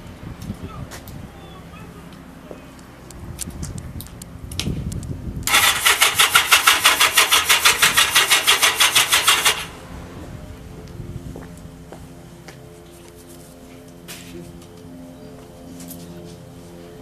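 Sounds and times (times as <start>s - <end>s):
engine cranking on starter: 5.4s - 9.8s.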